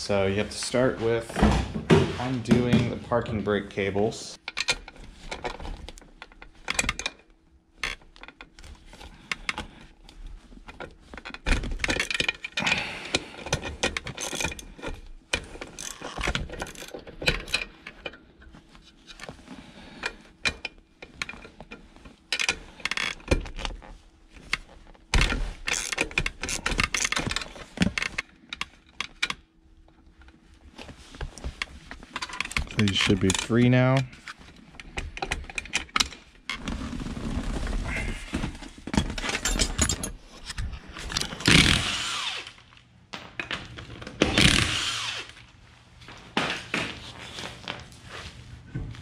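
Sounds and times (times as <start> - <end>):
metal tools clicking and clinking: 39.2 - 40.6.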